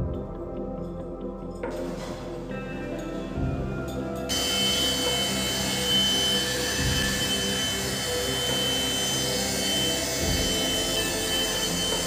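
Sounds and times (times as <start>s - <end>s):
handheld vacuum cleaner running: 4.3s - 12.0s.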